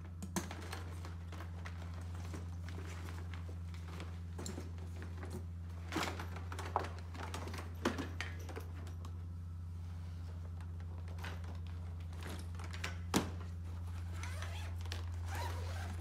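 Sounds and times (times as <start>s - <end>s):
steady low hum: 0.0s - 16.0s
stretcher straps and buckles rustling: 10.5s - 16.0s.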